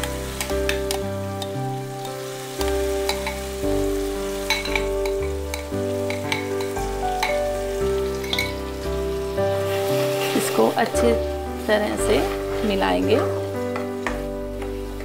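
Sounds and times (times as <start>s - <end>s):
background music: 0.0s - 15.0s
sizzling and frying: 0.0s - 15.0s
steel spoon clinking and scraping: 4.5s - 7.4s, 8.1s - 8.6s.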